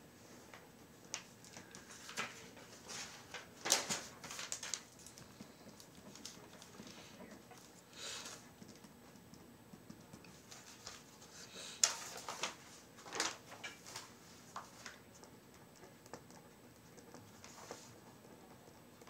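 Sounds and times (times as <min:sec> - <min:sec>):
typing on a computer keyboard: 0:08.5 - 0:10.3.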